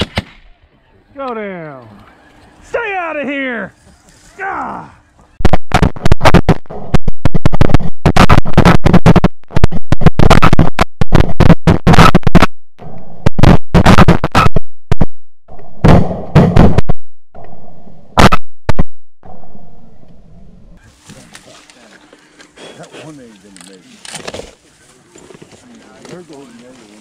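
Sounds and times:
shotgun blasts: 0:00.0 - 0:00.5.

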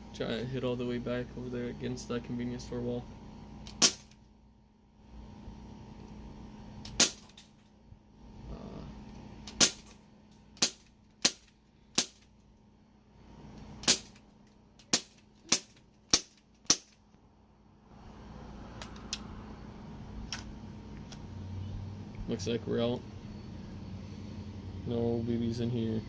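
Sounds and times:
airsoft pistol shots: 0:03.7 - 0:04.2, 0:06.9 - 0:07.5, 0:09.5 - 0:10.0, 0:10.6 - 0:12.3, 0:13.8 - 0:14.2, 0:14.8 - 0:17.0.

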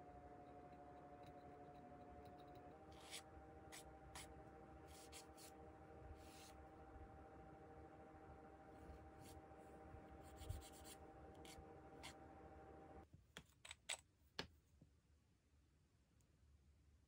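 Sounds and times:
low steady hum: 0:00.0 - 0:13.2.

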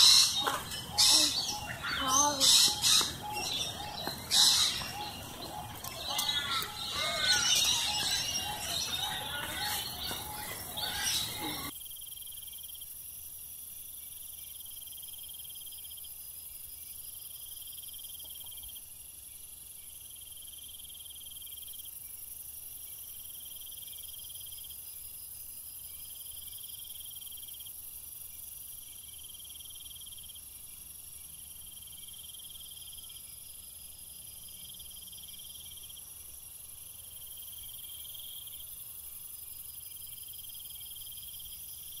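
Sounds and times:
loud bird calls: 0:00.0 - 0:11.7
insects chirring: 0:00.0 - 0:42.0
constant high hiss: 0:09.8 - 0:42.0.

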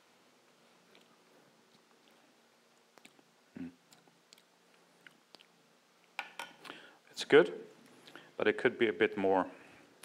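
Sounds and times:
mouth clicks and lip smacks: 0:00.8 - 0:06.8.

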